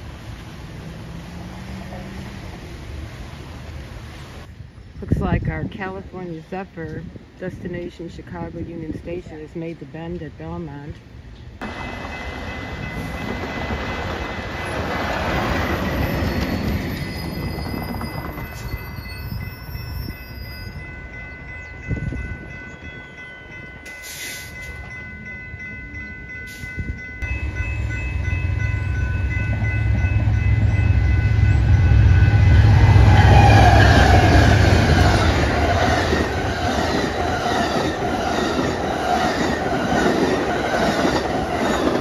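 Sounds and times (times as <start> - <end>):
railroad crossing bells ringing: 11.6 - 42.0
diesel locomotive rumble: 24.0 - 42.0.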